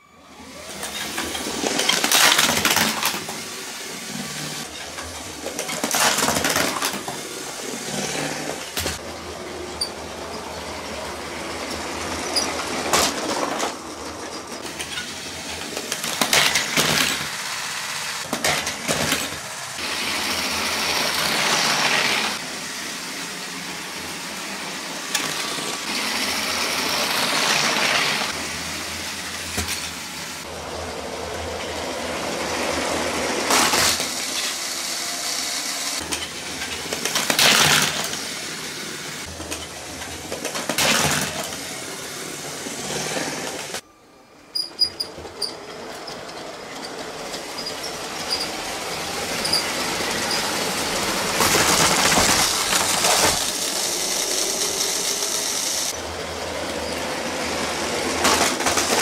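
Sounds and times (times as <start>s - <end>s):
toy trains running on plastic track: 0.2s - 43.8s, 44.5s - 59.0s
plastic bricks crashing and clattering: 5.5s - 7.1s, 51.3s - 53.6s, 58.2s - 59.0s.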